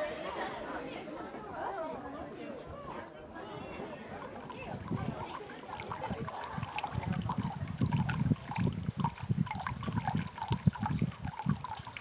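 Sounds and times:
water trickling into stone basin: 4.0 - 12.0.

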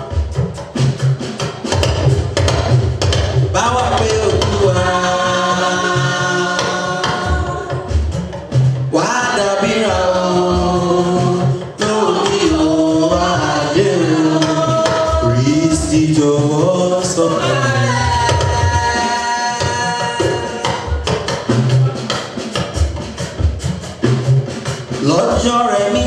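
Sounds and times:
drum and percussion: 0.0 - 26.0
women's choir singing a hymn: 4.6 - 7.9, 9.0 - 15.6, 16.6 - 20.9.

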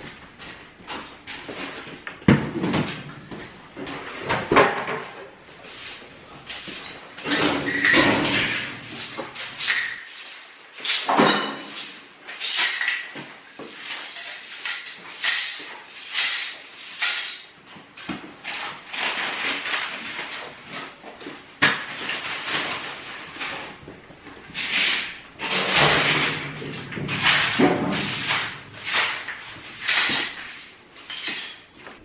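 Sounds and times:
broom sweeping concrete floor: 4.0 - 17.6, 21.9 - 32.0.

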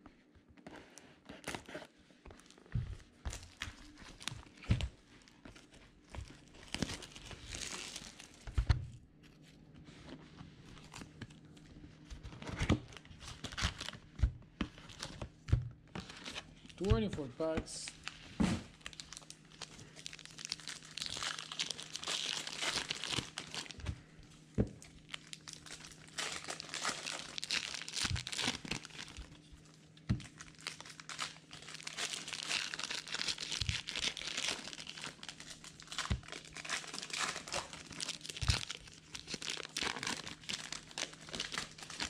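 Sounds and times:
card packs tearing and crinkling: 3.3 - 4.8, 5.5 - 8.5, 12.3 - 14.0, 16.0 - 23.8, 24.8 - 29.4, 30.2 - 42.0.

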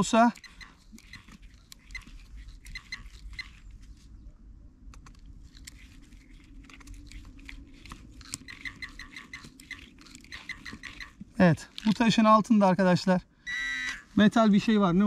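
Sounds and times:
coil brushing leaves and soil: 0.0 - 13.1, 14.1 - 15.0
metal detector beeps: 0.3 - 1.3, 10.3 - 11.2, 13.4 - 14.1.

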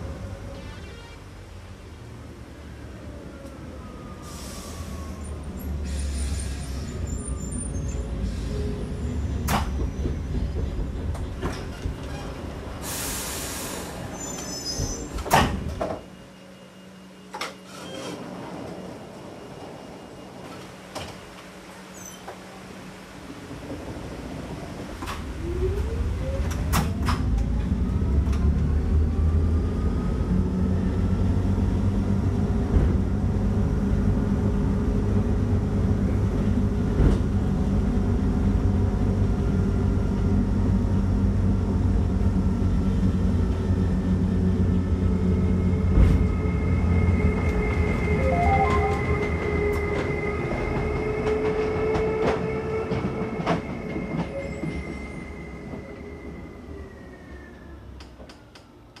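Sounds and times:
high-pitched tone: 47.3 - 50.2.

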